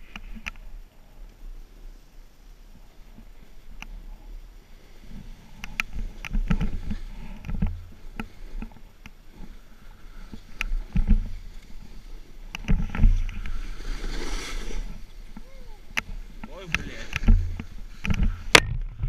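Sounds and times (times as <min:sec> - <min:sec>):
camera mount rumbles and knocks: 0:05.7 - 0:08.8, 0:16.7 - 0:19.0
snowboard swishing through snow: 0:13.5 - 0:15.3.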